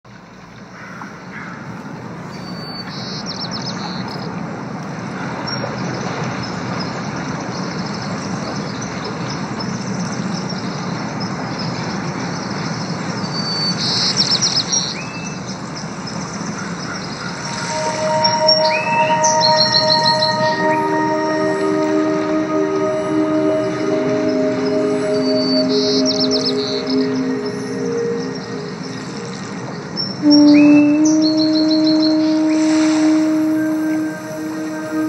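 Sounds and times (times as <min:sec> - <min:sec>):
ocean wash rushing: 0:17.3 - 0:35.0.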